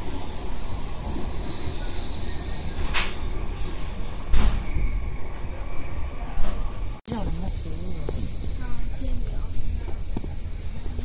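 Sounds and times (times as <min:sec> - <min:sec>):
high wheel squeal: 0:00.0 - 0:06.0
train rumble inside carriage: 0:00.0 - 0:11.0.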